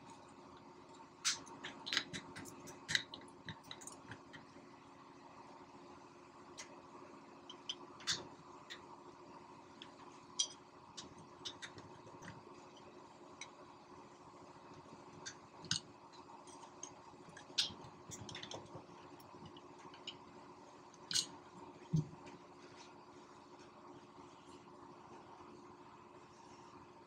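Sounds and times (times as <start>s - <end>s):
sharp metal clicks and scrapes: 21.1s - 21.4s.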